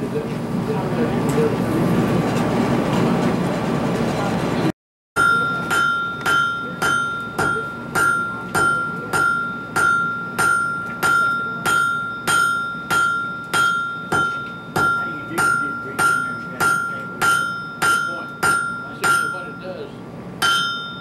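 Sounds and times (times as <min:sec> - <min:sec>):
hammer striking steel on anvil: 0:05.2 - 0:19.8, 0:20.4 - 0:21.0.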